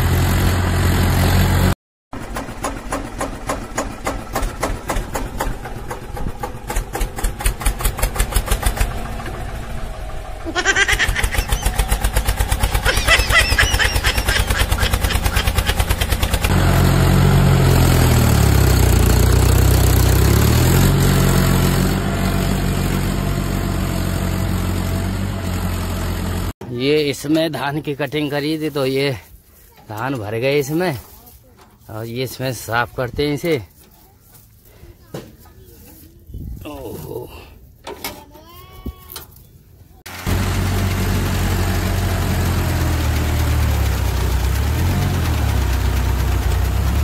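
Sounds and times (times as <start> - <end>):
mini tractor engine putting: 0.0 - 26.5, 40.1 - 47.0
small engine humming: 5.6 - 26.5.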